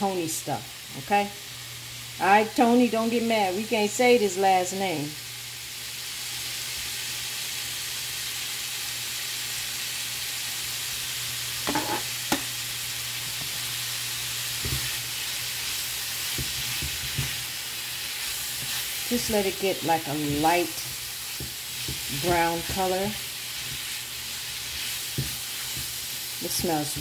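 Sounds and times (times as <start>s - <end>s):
sausage sizzling in frying pan: 0.0s - 27.0s
spatula knocking in pan: 11.6s - 12.5s, 16.3s - 17.4s, 20.2s - 22.9s, 25.1s - 26.0s.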